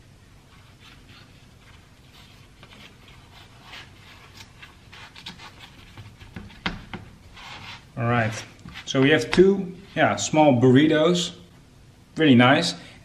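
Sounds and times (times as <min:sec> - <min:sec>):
hands folding tortilla rustling: 0:00.3 - 0:09.9.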